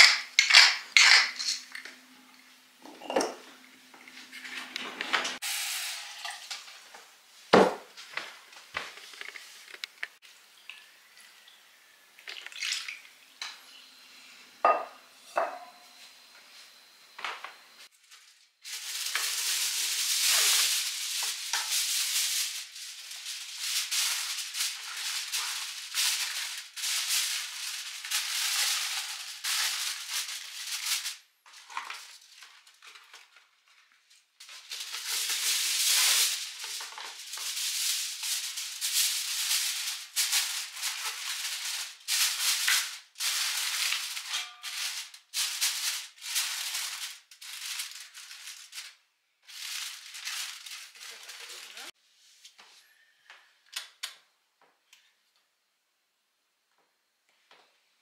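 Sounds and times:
dishes and utensils clinking: 0.0s - 2.0s, 2.8s - 5.4s, 14.6s - 15.8s, 44.2s - 44.9s.

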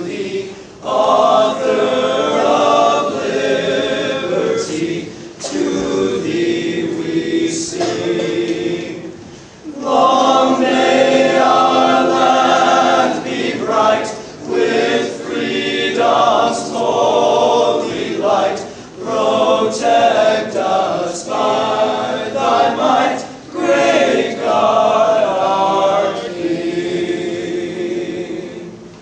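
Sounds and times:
choir of young men singing: 0.0s - 28.9s.

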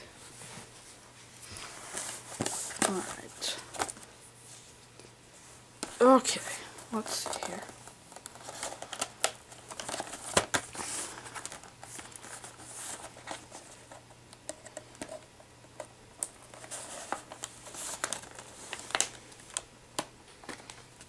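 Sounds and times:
packaging crinkling: 6.7s - 14.0s, 14.6s - 21.0s.

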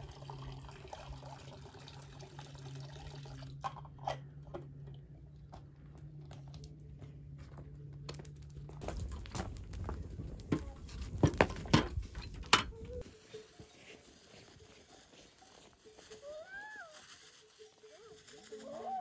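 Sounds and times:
wood fire crackling: 7.6s - 18.8s.

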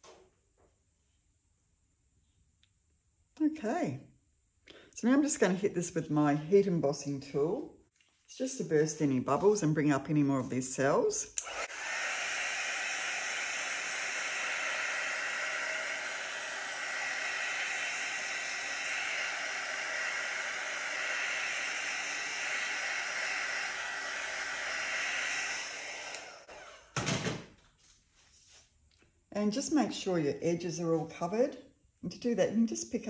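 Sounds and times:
heat tool blowing hot air: 11.4s - 27.0s.

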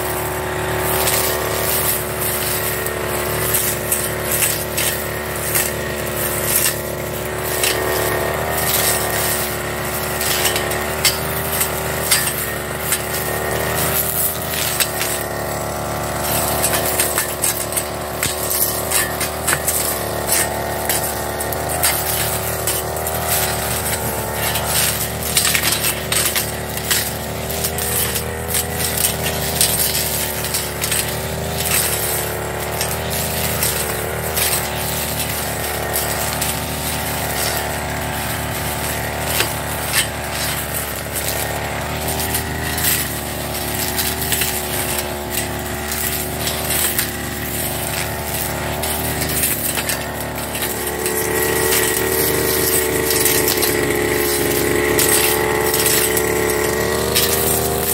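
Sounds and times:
blade ticking on stems: 0.0s - 57.9s
brush cutter engine running: 0.0s - 57.9s.

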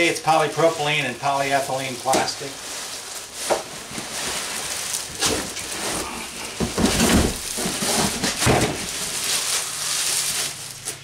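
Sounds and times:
plastic wrapping crinkling: 0.0s - 11.0s
cardboard box rustling and scraping: 2.8s - 11.0s.

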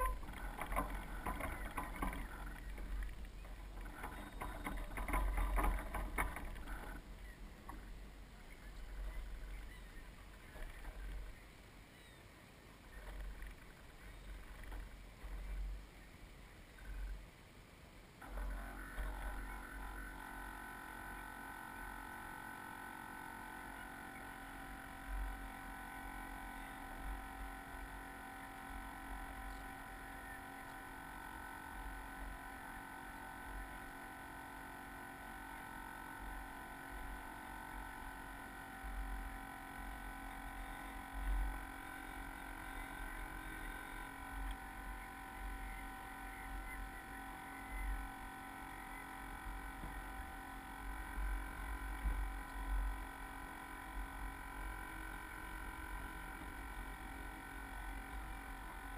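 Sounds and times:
wind and waves buffeting hull: 0.0s - 11.5s
steady tonal hum: 0.0s - 58.9s.

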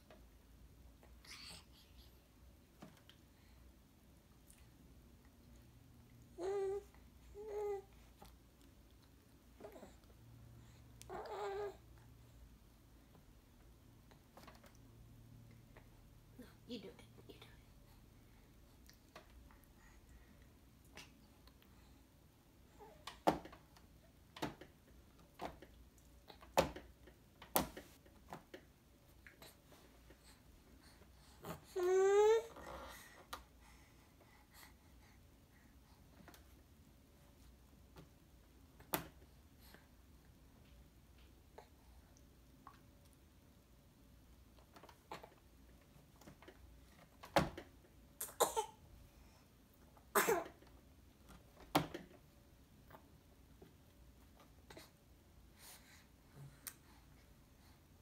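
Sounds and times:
baby coughing and sputtering: 48.2s - 48.8s, 50.1s - 50.6s.

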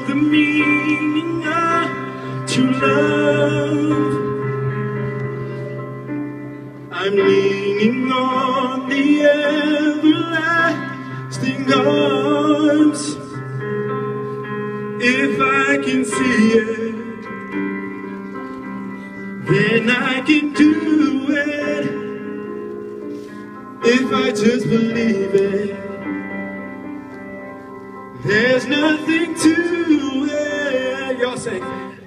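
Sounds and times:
man singing: 0.0s - 4.8s, 6.8s - 13.7s, 14.9s - 17.4s, 19.4s - 22.5s, 23.7s - 26.2s, 28.1s - 32.0s
electric keyboard chords: 0.0s - 32.0s.

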